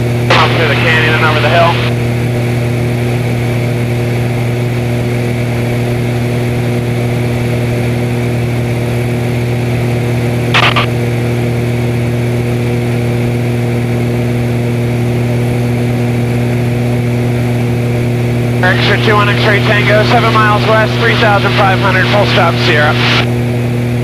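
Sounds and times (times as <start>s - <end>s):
plane engine drone in cockpit: 0.0s - 24.0s.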